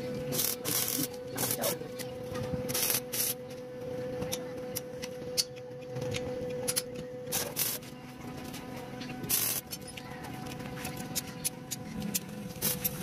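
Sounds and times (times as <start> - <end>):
welder hum: 0.0 - 5.5, 6.1 - 9.8
crackling welding arc: 0.3 - 1.9, 2.7 - 3.4, 6.7 - 7.9, 9.2 - 9.8.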